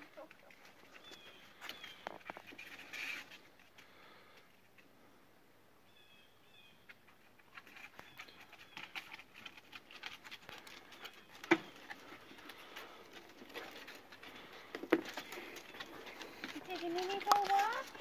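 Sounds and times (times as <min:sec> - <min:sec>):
dog claws scrabbling and clicking: 0:07.1 - 0:18.0.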